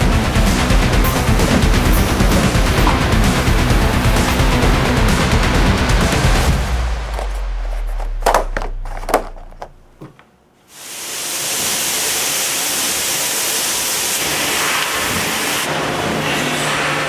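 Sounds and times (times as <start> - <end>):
factory machinery hiss: 10.7 - 17.0.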